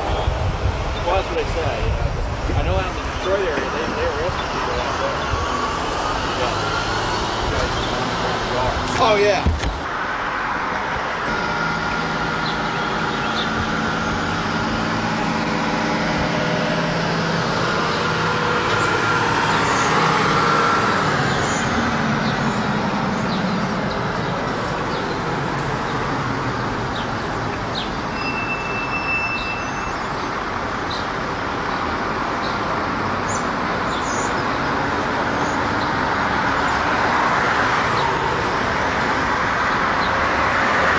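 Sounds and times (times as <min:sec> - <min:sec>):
vehicle passing: 0:00.0 - 0:28.2, 0:30.0 - 0:40.9
traffic hum: 0:00.0 - 0:40.9.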